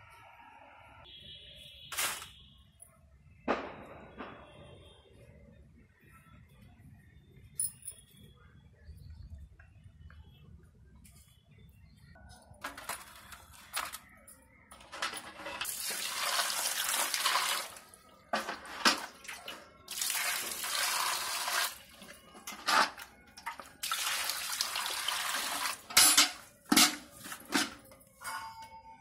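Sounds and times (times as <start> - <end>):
water pouring into metal basin: 15.0 - 22.2, 22.8 - 26.4.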